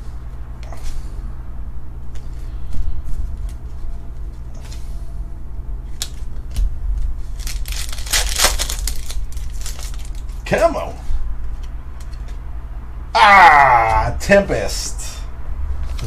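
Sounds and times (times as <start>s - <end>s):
steady low hum: 0.0s - 16.0s
trading cards flicked and rustling: 5.9s - 10.4s.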